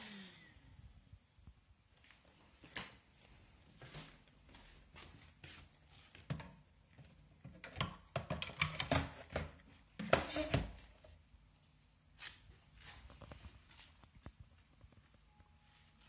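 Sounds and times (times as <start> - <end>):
plastic clicks and knocks: 7.4 - 10.7.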